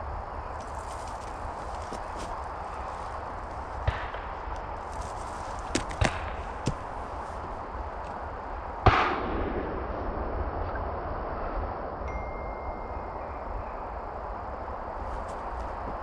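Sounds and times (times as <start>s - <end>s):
distant shotgun shots: 8.8s - 9.7s.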